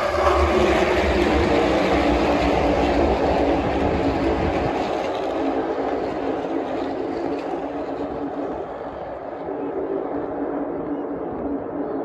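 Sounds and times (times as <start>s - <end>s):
race cars passing by: 0.0s - 9.1s.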